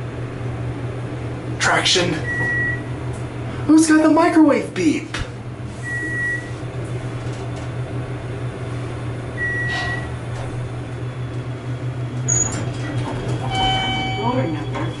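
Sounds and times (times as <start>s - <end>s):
elevator hum: 0.0s - 15.0s
short beep: 13.5s - 14.6s.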